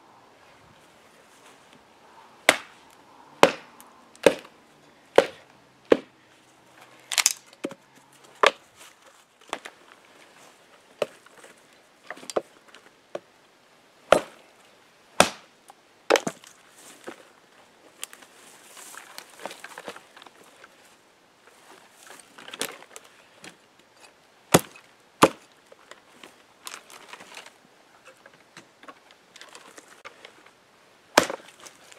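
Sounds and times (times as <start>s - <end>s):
knife chopping branches: 2.4s - 2.8s, 3.4s - 4.5s, 5.1s - 6.1s, 14.1s - 14.4s, 15.2s - 15.5s, 24.5s - 25.5s, 31.2s - 31.8s.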